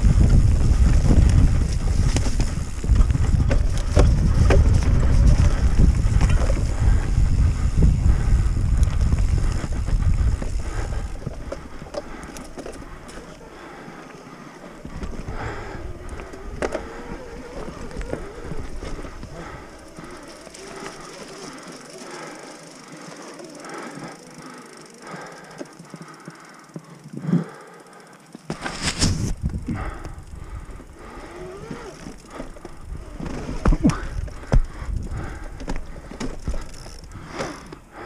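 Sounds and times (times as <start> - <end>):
wind rumble on microphone: 0.0 - 13.0, 28.8 - 37.4
bike clicks and rattles: 0.0 - 38.0.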